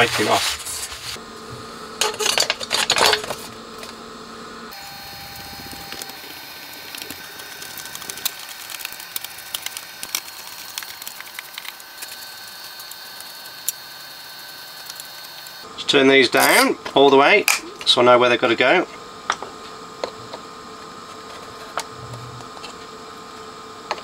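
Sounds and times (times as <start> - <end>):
rubbing and handling noise: 0.0 - 1.2, 19.6 - 22.9.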